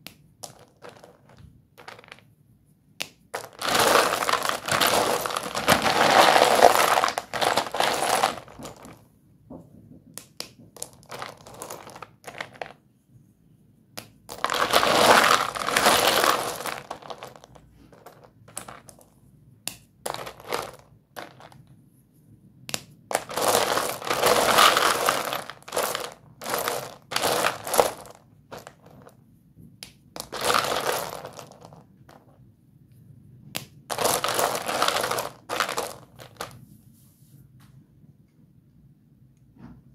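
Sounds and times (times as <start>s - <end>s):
chalk pieces crunching and crackling: 3.4s - 8.8s.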